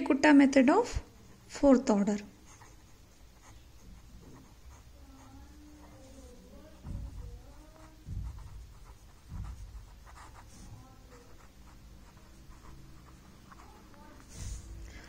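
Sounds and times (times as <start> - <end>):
pen scratching on paper: 1.2 - 15.0
low thumps: 6.5 - 12.6.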